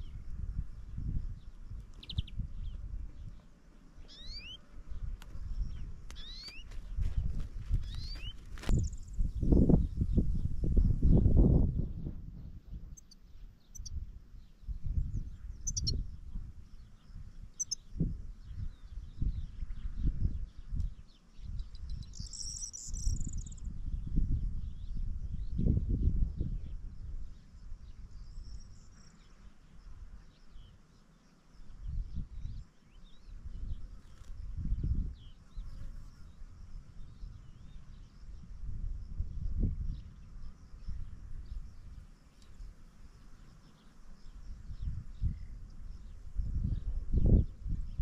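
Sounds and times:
songbird chirping: 0:00.0 - 0:25.8, 0:26.7 - 0:38.5, 0:39.9 - 0:48.0
wind rumble on microphone: 0:00.0 - 0:30.9, 0:31.5 - 0:48.0.

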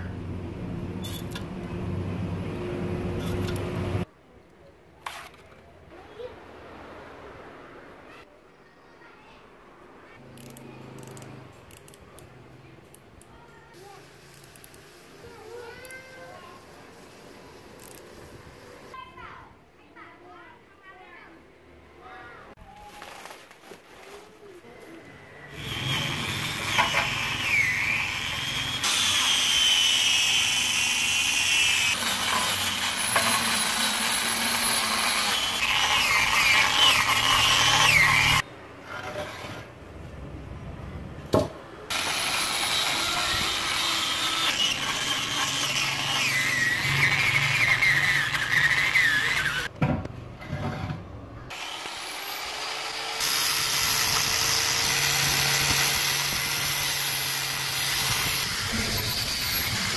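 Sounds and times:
angle grinder wire brushing metal: 0:03.1 - 0:04.0, 0:25.6 - 0:38.4, 0:41.9 - 0:49.7, 0:51.5 - 0:59.9.

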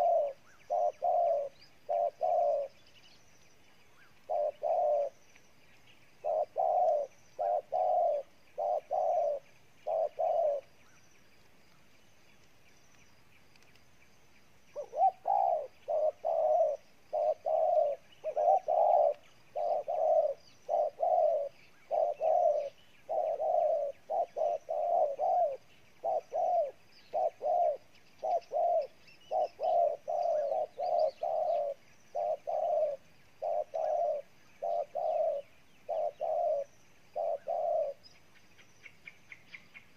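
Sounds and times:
dove cooing: 0:00.0 - 0:02.8, 0:04.0 - 0:05.2, 0:06.2 - 0:10.7, 0:14.8 - 0:38.2.

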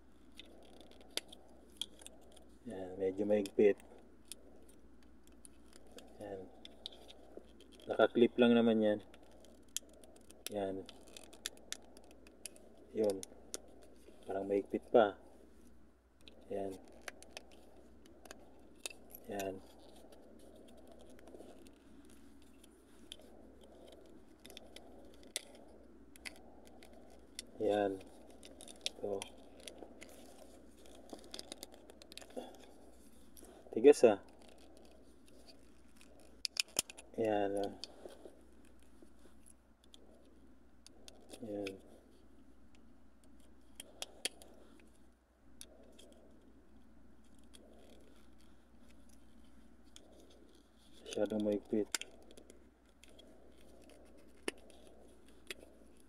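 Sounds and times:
plastic clicks and scraping: 0:16.2 - 0:40.1, 0:45.6 - 0:56.0.

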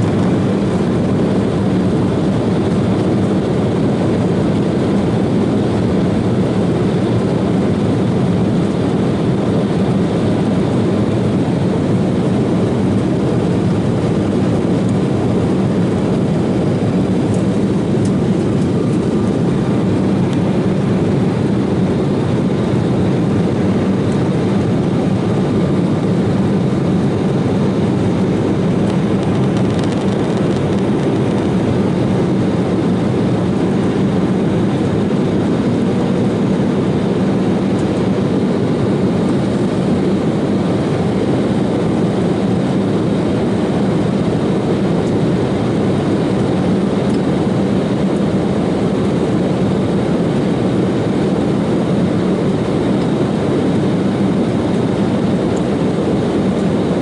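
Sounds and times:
airliner cabin engine drone: 0:00.0 - 0:57.0.

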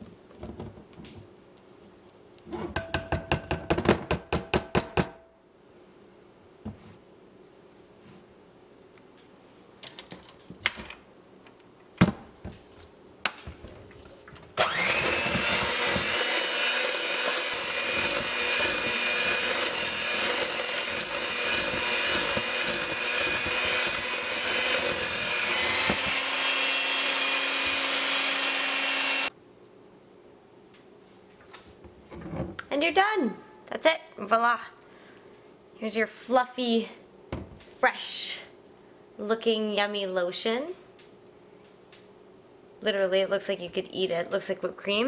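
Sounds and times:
electric hand mixer whipping: 0:14.6 - 0:29.3.

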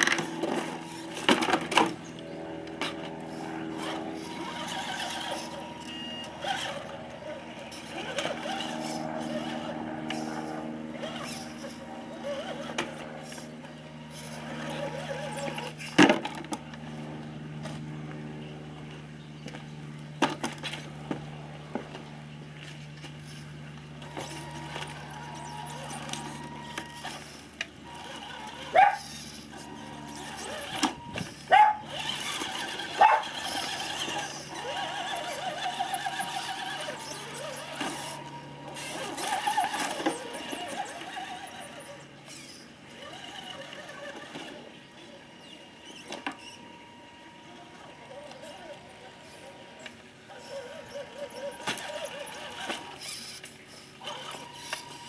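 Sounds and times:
toy car motor and gears whirring: 0:00.0 - 0:18.0, 0:18.9 - 0:55.0.

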